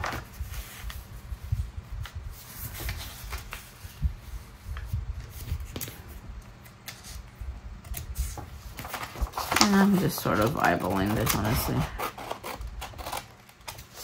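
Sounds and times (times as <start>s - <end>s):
paper rustling on a tabletop: 0.0s - 14.0s.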